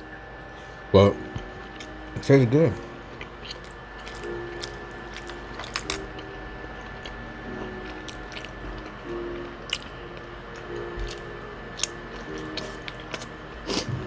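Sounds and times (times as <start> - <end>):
close chewing and biting: 3.1 - 10.0, 10.6 - 14.0.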